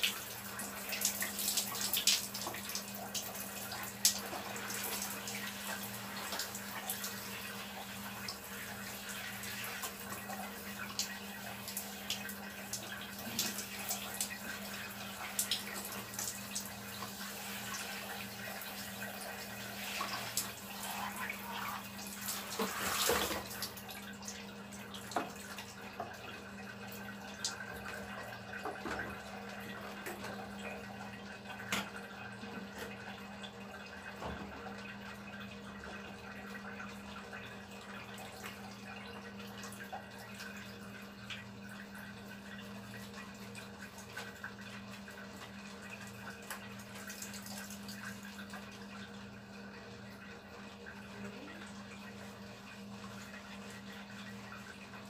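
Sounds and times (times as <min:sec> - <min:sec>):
shower spraying water: 0:00.0 - 0:24.4
water splashing and dripping: 0:00.0 - 0:26.4.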